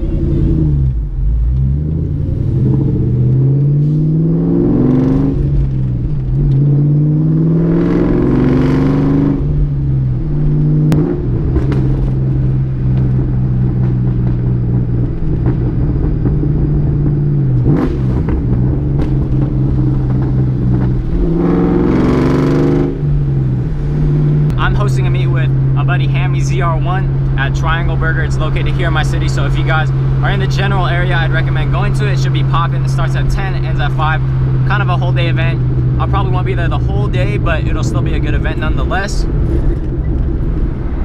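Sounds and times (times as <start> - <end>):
car engine revving through gears: 0.0 - 41.0.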